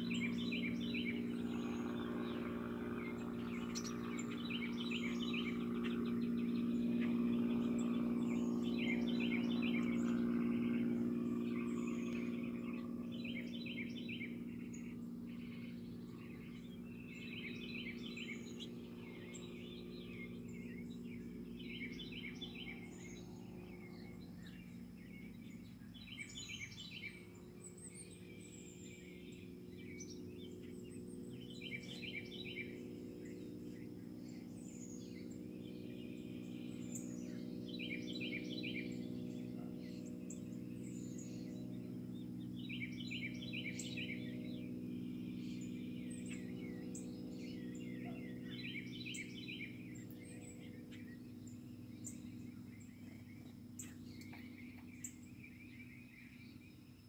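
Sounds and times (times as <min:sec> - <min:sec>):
songbirds singing: 0:00.0 - 0:57.0
steady low hum: 0:00.0 - 0:57.0.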